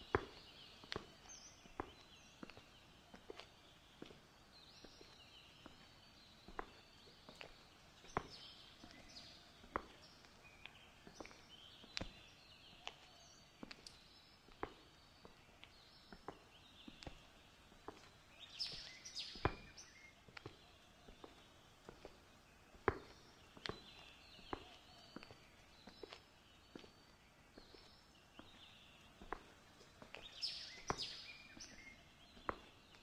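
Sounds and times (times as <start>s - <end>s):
small birds chirping: 0.0s - 33.0s.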